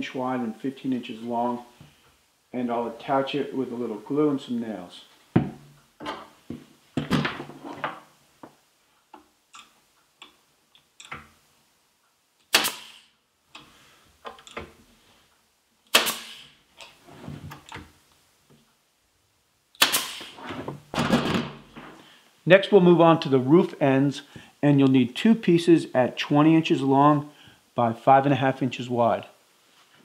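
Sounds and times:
pneumatic nailer firing: 12.5 - 13.1, 15.9 - 16.6, 19.8 - 20.4, 21.0 - 21.8.

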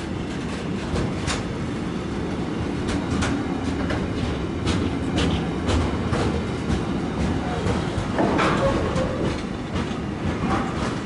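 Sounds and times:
freight train rumbling past: 0.0 - 11.0
wheel clacks over rail joints: 2.8 - 11.0.

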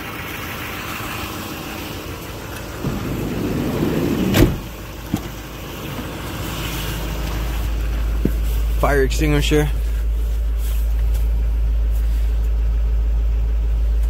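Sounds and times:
van sliding door rumble and bang: 2.6 - 6.4.

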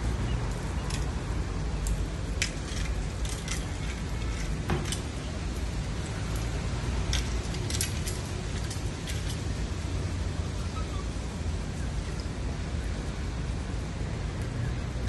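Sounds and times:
street traffic rumble: 0.0 - 15.0
metal chain clinks: 6.1 - 9.5.

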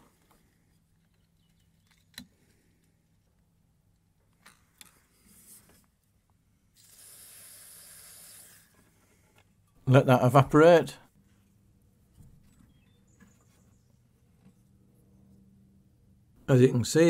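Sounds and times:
aerosol can spraying hiss: 6.8 - 8.7.

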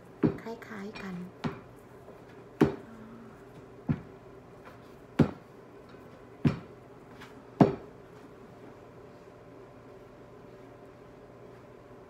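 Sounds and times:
dough patted between palms: 1.3 - 2.9, 3.5 - 8.3.

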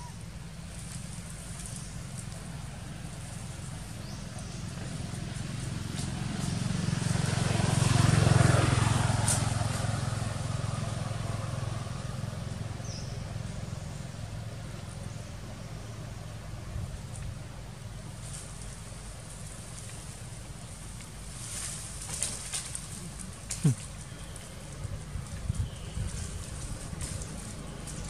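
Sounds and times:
vehicle engine hum passing: 0.0 - 28.0.

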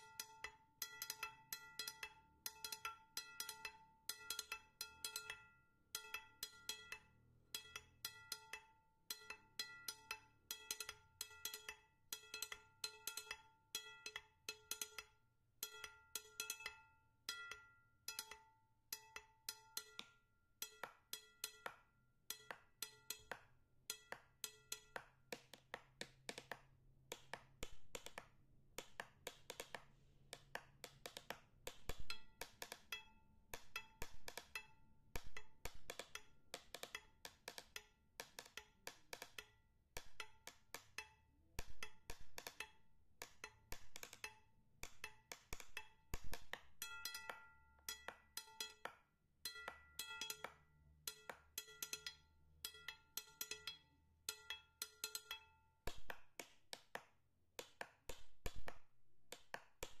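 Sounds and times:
percussive music with knocks: 18.2 - 52.1, 54.4 - 57.0, 57.6 - 60.0.

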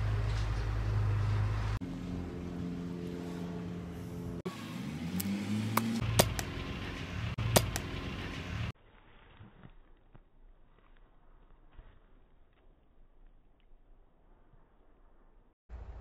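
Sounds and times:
low music chord: 1.8 - 4.4.

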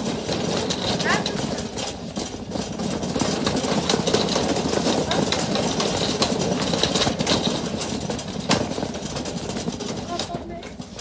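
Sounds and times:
shopping cart rattling: 0.0 - 11.0.

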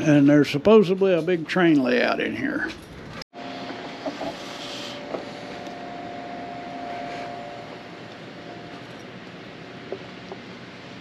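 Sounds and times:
faint steady hum: 3.4 - 11.0.

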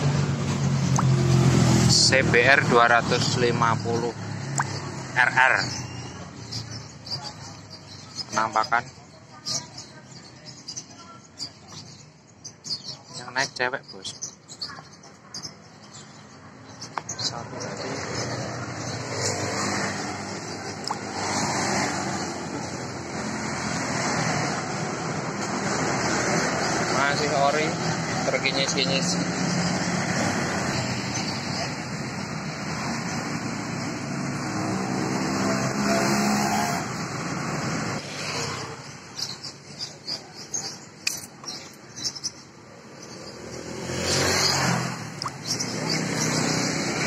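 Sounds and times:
road traffic noise: 0.0 - 47.0
sharp click: 41.0 - 41.5.

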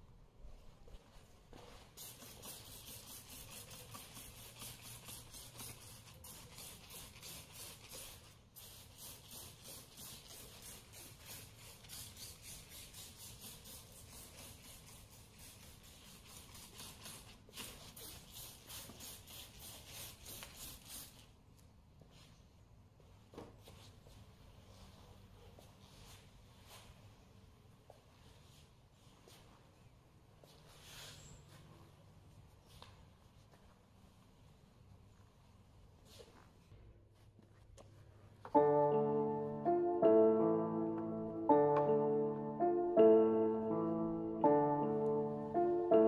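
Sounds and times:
hand sprayer hissing spurts: 1.6 - 21.3.

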